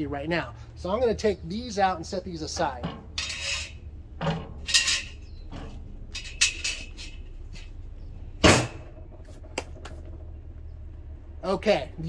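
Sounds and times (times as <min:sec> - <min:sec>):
cast iron grates clanking: 0:02.4 - 0:07.8.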